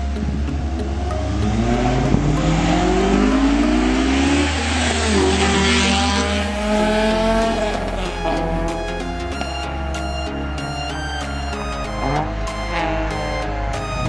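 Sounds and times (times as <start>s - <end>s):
car engine revving: 0.0s - 14.0s
music beat: 0.0s - 14.0s.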